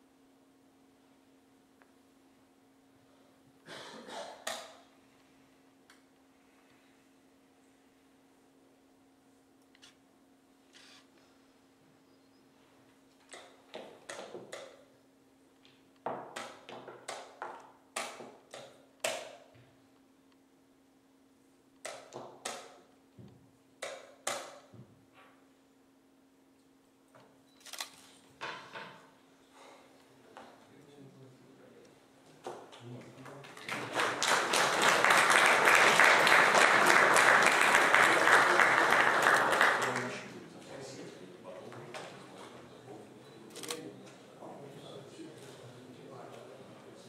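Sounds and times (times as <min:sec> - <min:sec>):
audience applauding: 0:33.0 - 0:40.4.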